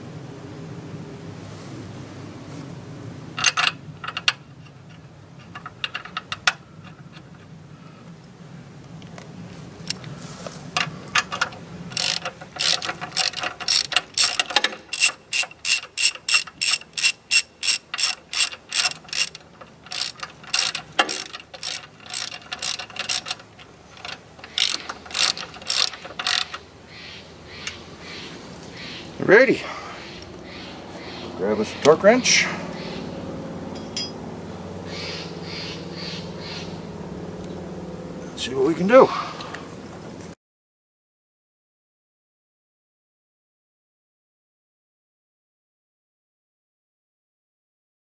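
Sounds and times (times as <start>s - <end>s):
socket ratchet clicking: 10.8s - 26.6s.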